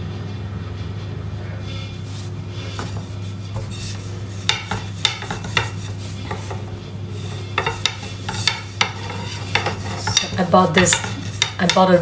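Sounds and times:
steady low hum: 0.0 - 12.0
rolling pin knocking on board: 2.8 - 6.7, 7.6 - 12.0.

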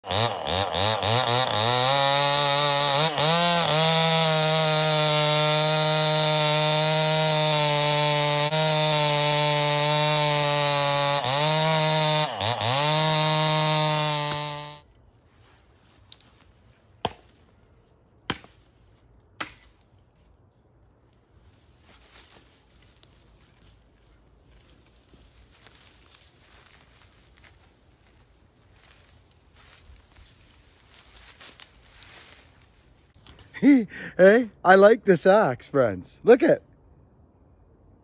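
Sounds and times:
chainsaw cutting through log: 0.0 - 14.9
axe chopping branches: 0.1 - 14.8, 17.0 - 17.4, 18.2 - 18.7, 19.4 - 19.9.

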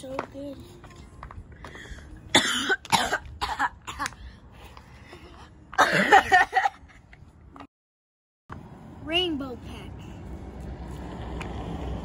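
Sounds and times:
person coughing: 2.3 - 4.1, 5.8 - 6.4.

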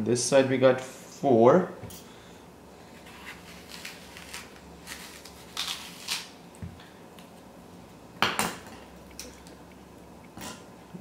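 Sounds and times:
knife scraping apple: 2.9 - 6.4.

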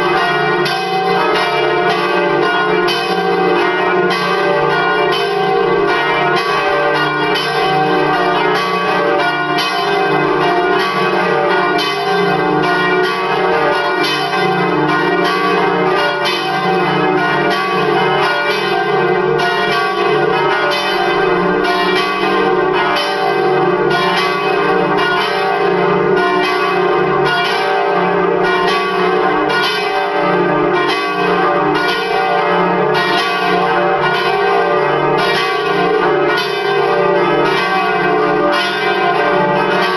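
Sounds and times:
church bells ringing in peal: 0.0 - 39.9.

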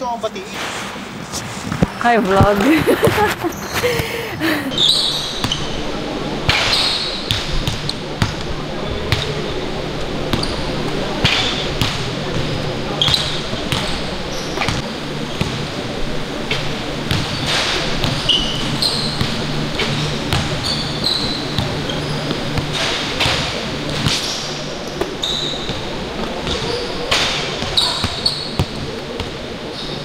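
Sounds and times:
sneaker squeaks: 2.5 - 4.0, 4.7 - 5.9, 6.5 - 8.4, 10.3 - 14.8, 17.1 - 30.0.

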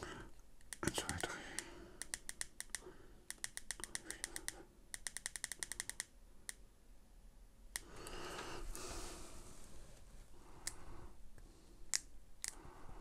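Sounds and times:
soft rushing hiss: 7.7 - 13.0.

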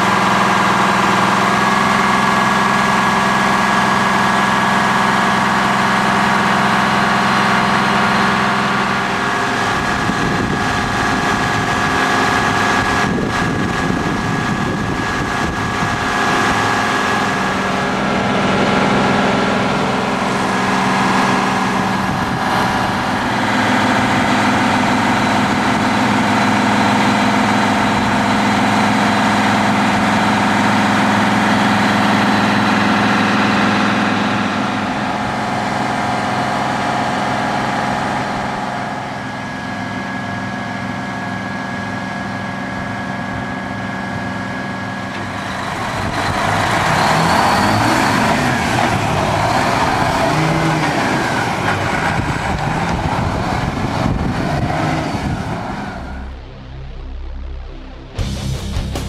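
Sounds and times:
diesel truck engine running: 0.0 - 59.0.

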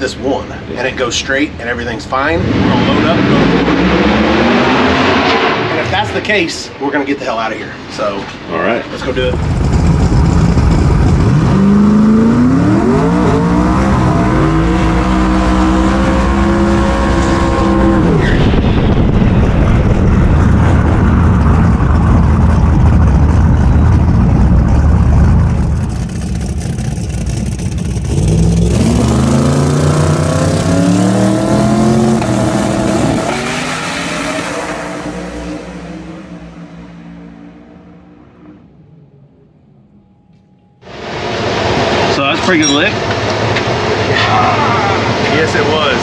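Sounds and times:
drag car engine revving: 2.0 - 6.4, 9.0 - 38.7.

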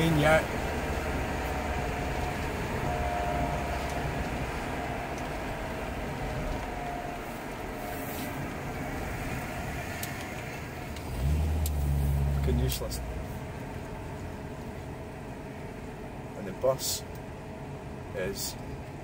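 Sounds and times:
faint whine: 0.0 - 10.9
tyre and road rumble: 0.0 - 15.0
car engine running: 0.0 - 19.0.

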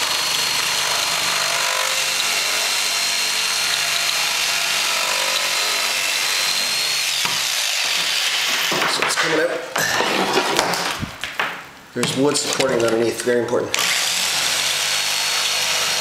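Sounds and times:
electric jigsaw cutting: 0.0 - 8.9, 13.8 - 16.0.

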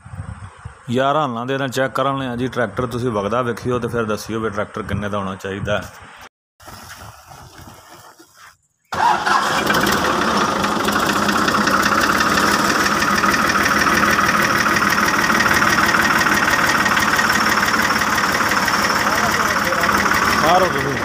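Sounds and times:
tractor diesel engine running: 8.9 - 21.0.

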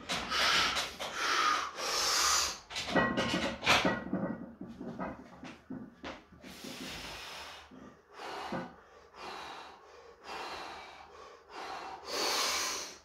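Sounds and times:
man breathing hard: 0.1 - 2.7, 6.4 - 13.0.

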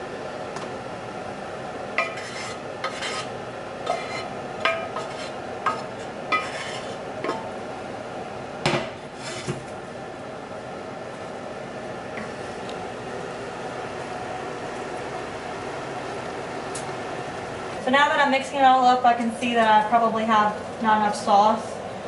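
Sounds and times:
wooden spoon scraping metal pot: 2.0 - 7.4, 9.2 - 9.6.

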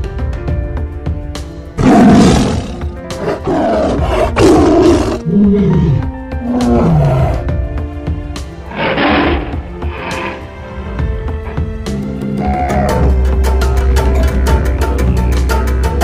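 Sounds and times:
background music: 0.0 - 16.0
tiger roars: 1.8 - 7.6, 8.6 - 10.5, 11.8 - 15.5
low drawn-out animal calls: 11.9 - 16.0.

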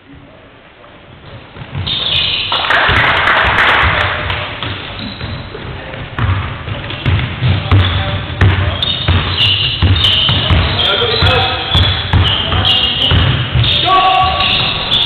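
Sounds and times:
players' footsteps: 0.8 - 15.0
basketball bouncing on wooden floor: 1.2 - 2.2, 4.2 - 15.0.

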